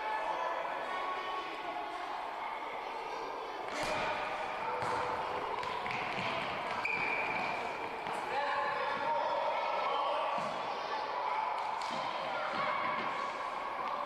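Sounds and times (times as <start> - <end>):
ball kicked and bouncing: 4.8 - 8.2.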